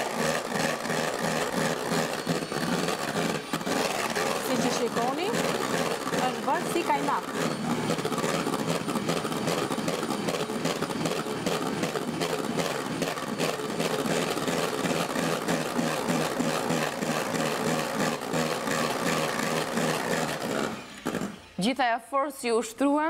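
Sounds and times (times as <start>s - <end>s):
electric hand mixer whipping: 0.0s - 21.7s.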